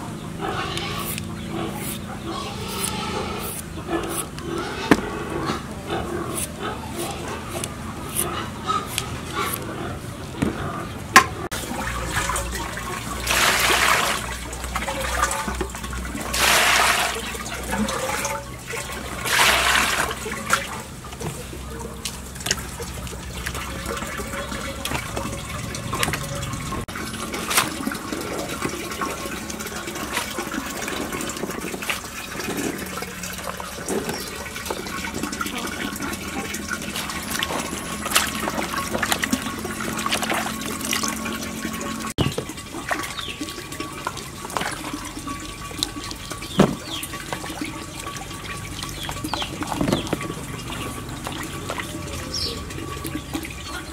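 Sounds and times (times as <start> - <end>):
water sloshing and splashing: 0.0 - 53.9
water pouring into plastic basin: 11.5 - 53.9.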